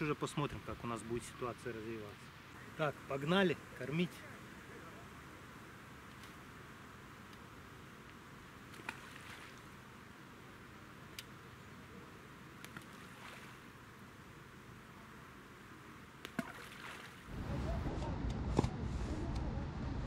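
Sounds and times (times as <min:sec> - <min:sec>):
faint plops in water: 0:16.2 - 0:17.2.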